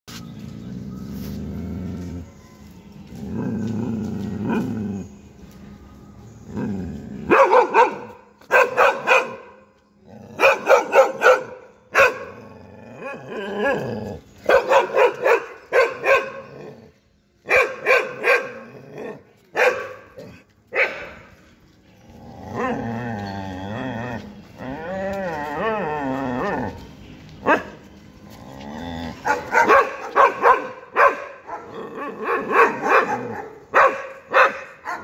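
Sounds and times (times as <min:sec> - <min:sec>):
dogs barking: 0:07.2 - 0:09.7, 0:10.3 - 0:16.8, 0:17.4 - 0:21.4, 0:27.4 - 0:27.8, 0:29.1 - 0:35.0.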